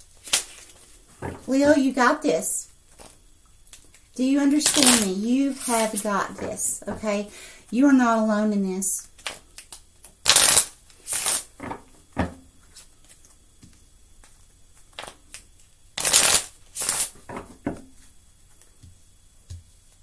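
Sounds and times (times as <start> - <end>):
cards shuffling: 0.2 - 1.5, 4.6 - 6.6, 9.2 - 11.5, 16.0 - 17.2.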